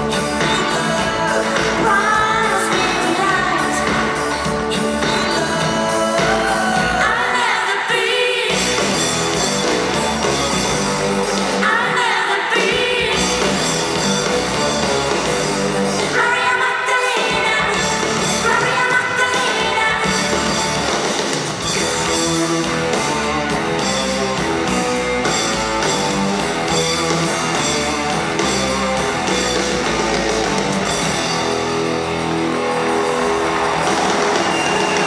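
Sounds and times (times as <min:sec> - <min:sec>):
electric guitar: 0:00.0 - 0:07.6, 0:17.2 - 0:35.0
drum beat: 0:29.4 - 0:35.0.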